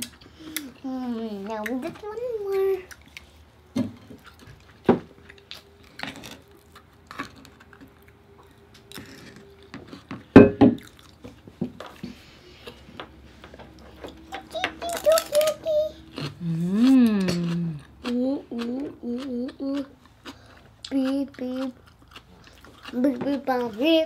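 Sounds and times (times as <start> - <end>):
child humming: 14.3 - 19.9
wet chewing and lip smacks: 17.2 - 23.0.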